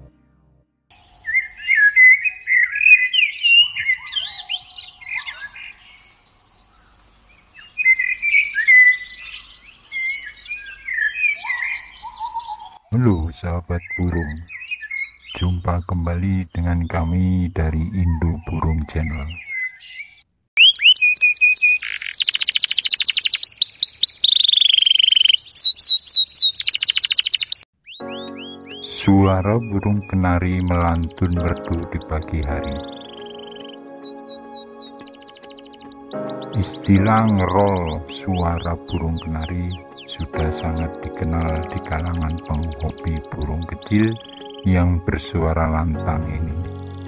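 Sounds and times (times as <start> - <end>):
canary singing: 1.0 - 6.1, 7.6 - 47.0
songbird warbling: 1.1 - 7.0, 7.6 - 15.5, 18.0 - 36.2.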